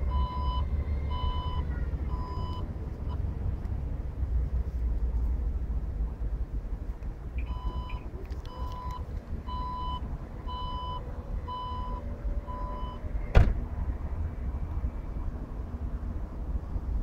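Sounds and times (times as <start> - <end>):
tailgate latching clunk: 13.3 - 13.6.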